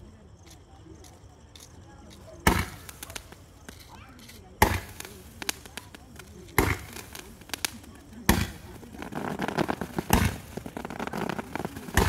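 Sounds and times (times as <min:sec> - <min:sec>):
small firework pops: 0:00.4 - 0:12.0
firework shots: 0:02.4 - 0:12.0.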